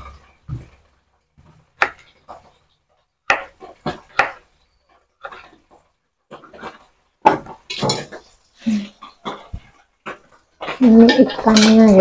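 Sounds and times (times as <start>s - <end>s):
knife chopping on wooden board: 1.8s - 2.5s, 3.2s - 4.5s.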